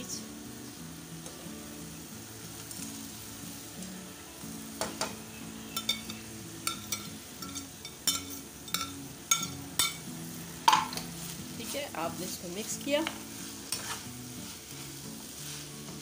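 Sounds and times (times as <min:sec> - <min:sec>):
food sizzling in frying pan: 0:00.0 - 0:16.0
metal spoon clinking and scraping: 0:05.7 - 0:10.0, 0:13.7 - 0:14.1.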